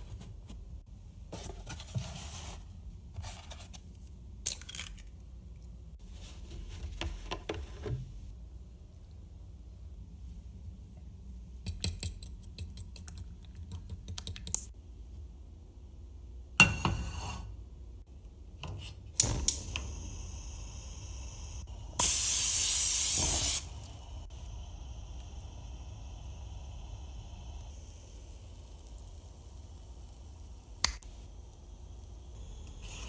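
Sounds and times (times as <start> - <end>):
gas burner clicking and lighting: 19.1 - 33.0
cooking spray hissing: 19.2 - 33.0
gas burner hissing: 19.2 - 33.0.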